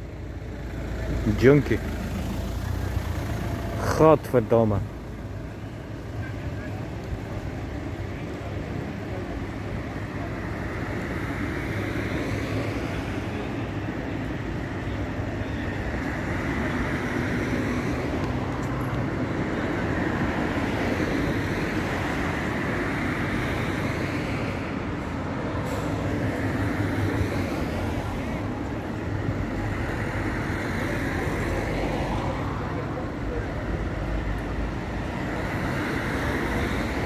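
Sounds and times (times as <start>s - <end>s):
road traffic engine hum: 0.0s - 37.0s.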